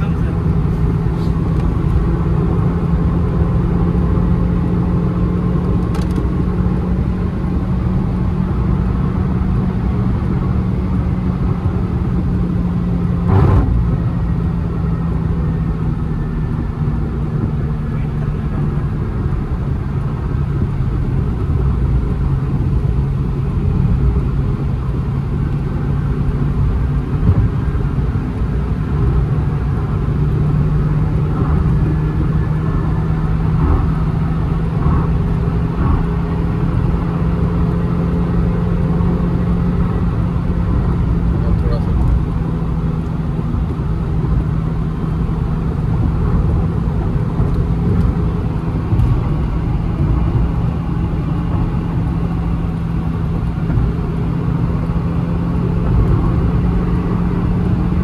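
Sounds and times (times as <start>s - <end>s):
car engine at high revs: 0.0s - 58.0s
road and tyre noise: 0.0s - 58.0s.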